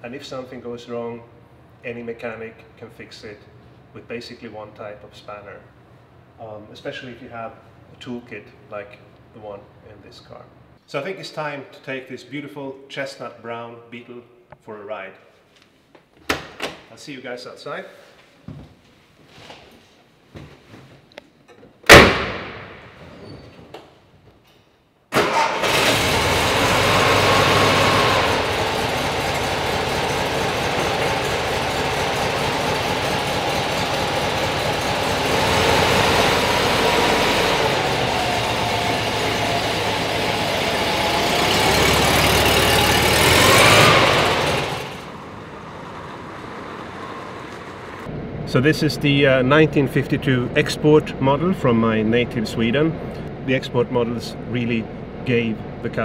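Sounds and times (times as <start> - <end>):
car door slamming: 21.9 - 22.6
car engine starting and revving: 25.2 - 53.3.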